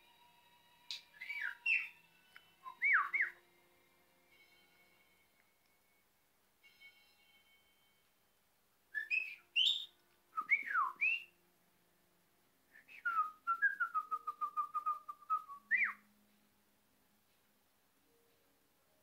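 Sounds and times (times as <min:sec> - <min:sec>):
budgerigar whistling: 0:01.2 - 0:01.9, 0:09.0 - 0:09.9.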